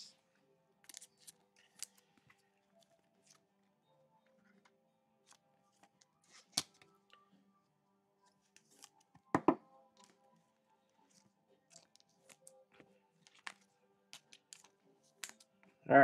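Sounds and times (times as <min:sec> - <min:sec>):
faint music: 0:00.0 - 0:16.0
cards clicking and rustling: 0:00.8 - 0:03.4, 0:04.3 - 0:07.2, 0:08.3 - 0:10.2, 0:11.0 - 0:15.8.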